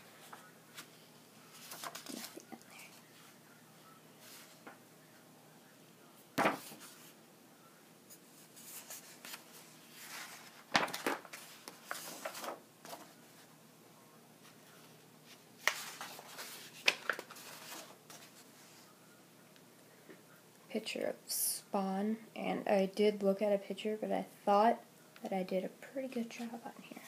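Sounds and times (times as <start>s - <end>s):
paper pages rustling: 0.0s - 3.0s, 6.4s - 7.2s, 8.1s - 13.5s, 14.4s - 18.8s.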